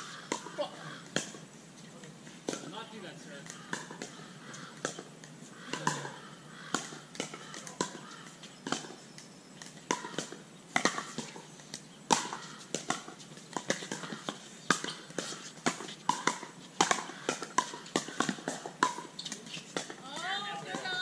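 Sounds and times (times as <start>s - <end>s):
ball bouncing on hard court: 0.3s - 1.4s, 2.4s - 2.8s, 3.4s - 5.1s, 5.7s - 9.0s, 9.6s - 21.0s
paddles striking plastic ball: 9.9s - 21.0s.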